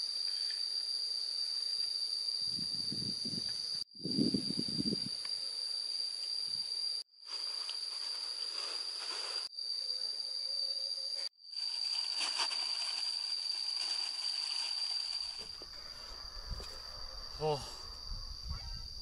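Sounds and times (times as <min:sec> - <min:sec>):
high-pitched insect drone: 0:00.0 - 0:19.0
wind hiss: 0:02.4 - 0:05.3.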